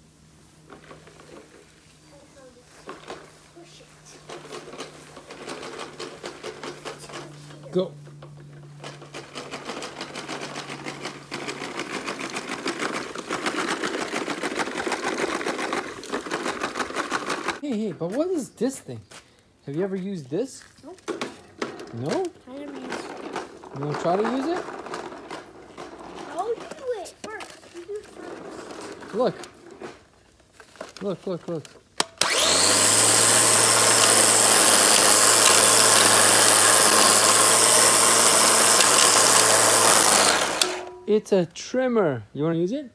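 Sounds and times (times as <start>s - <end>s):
toy lawn mower clicking: 4.2s - 7.4s, 8.1s - 17.6s, 20.8s - 41.0s
electric string trimmer running: 4.2s - 17.6s, 21.0s - 25.9s, 32.0s - 41.0s.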